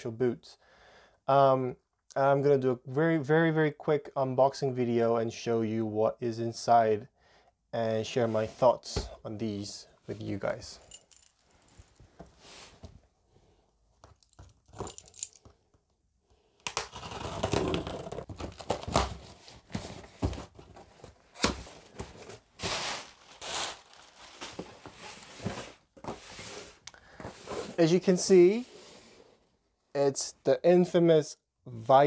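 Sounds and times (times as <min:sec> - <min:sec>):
packing tape tearing: 0:16.6 - 0:19.4, 0:22.6 - 0:24.5
paper packing crumpling: 0:21.4 - 0:25.5.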